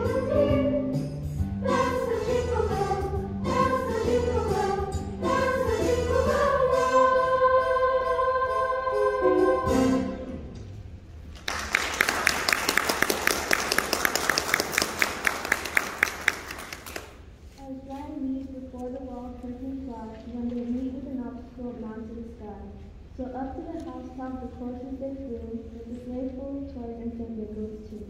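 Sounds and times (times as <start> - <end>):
girls' choir singing: 1.6 - 10.4
audience applause: 11.4 - 17.2.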